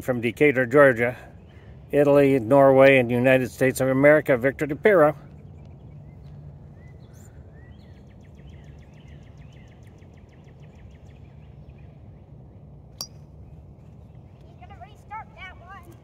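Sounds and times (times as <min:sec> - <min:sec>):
birds chirping: 0:00.0 - 0:16.0
low background hum: 0:00.0 - 0:16.0
golf club striking ball: 0:13.0 - 0:13.3.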